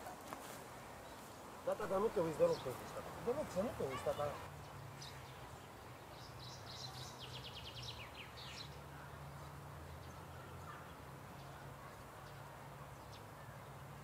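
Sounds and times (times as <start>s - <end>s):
small birds chirping: 0.1s - 14.0s.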